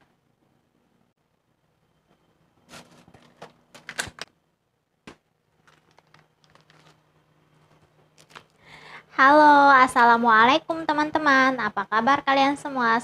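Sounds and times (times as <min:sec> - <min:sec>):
plastic bag rustling: 0:02.6 - 0:03.6, 0:05.5 - 0:08.6
frozen packets rustling and knocking: 0:05.1 - 0:08.6.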